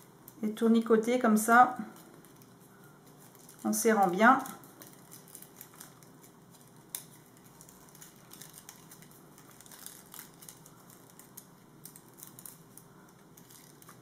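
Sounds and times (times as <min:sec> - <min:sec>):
paper crinkling and rustling: 0:01.9 - 0:14.0.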